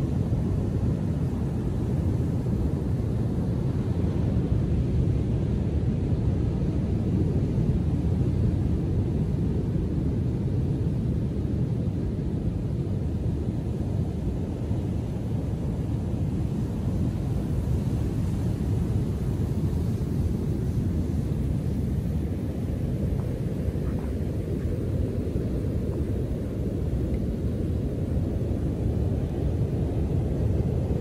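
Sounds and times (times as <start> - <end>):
surf waves breaking: 16.4 - 31.0.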